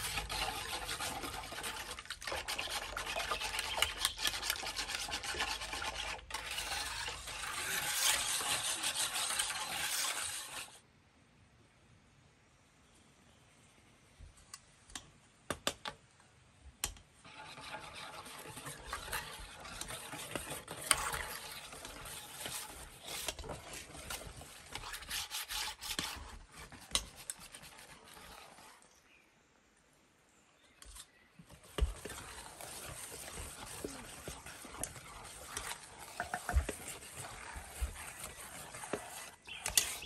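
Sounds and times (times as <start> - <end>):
hand rasping in batter: 0.0 - 10.7, 17.3 - 28.9, 31.5 - 40.0
sieve shaking and scratching: 0.0 - 10.8, 17.3 - 28.9, 31.5 - 40.0.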